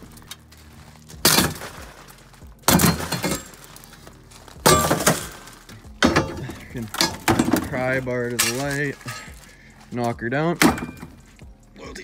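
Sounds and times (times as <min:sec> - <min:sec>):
glass breaking: 0:01.1 - 0:02.0, 0:02.6 - 0:03.8, 0:04.6 - 0:09.4, 0:10.6 - 0:11.2
pry bar smashing car window: 0:01.2 - 0:01.9, 0:02.6 - 0:03.7, 0:04.6 - 0:08.8.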